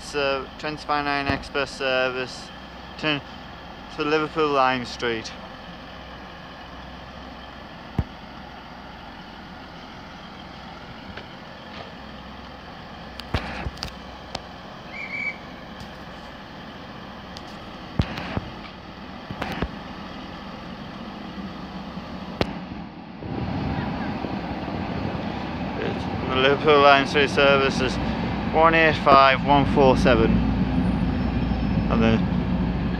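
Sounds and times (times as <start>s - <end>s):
diesel train engine hum: 0.0s - 32.9s
sharp clicks and knocks: 17.4s - 19.8s.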